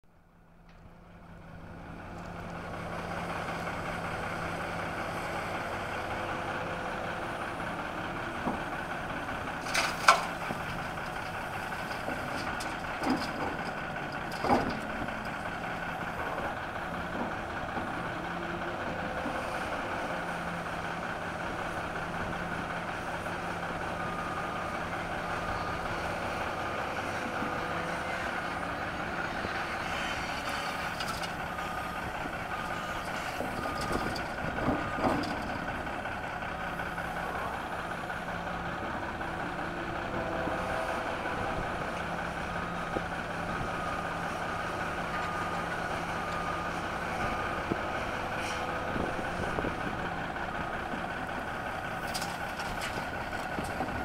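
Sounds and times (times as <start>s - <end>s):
heavy diesel engines running: 0.1s - 54.0s.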